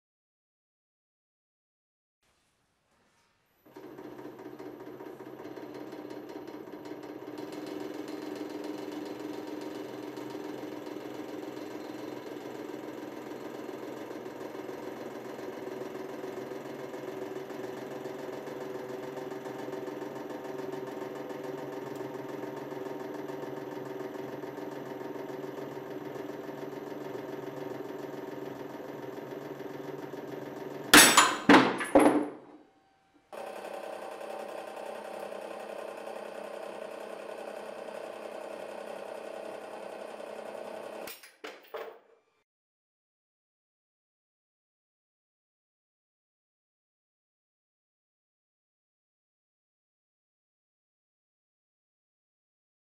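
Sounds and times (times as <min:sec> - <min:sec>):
hydraulic press humming: 0:03.7 - 0:32.6.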